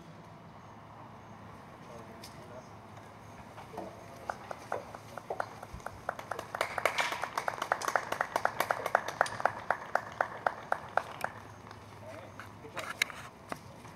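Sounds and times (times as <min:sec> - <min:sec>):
people clapping: 0:03.8 - 0:11.8.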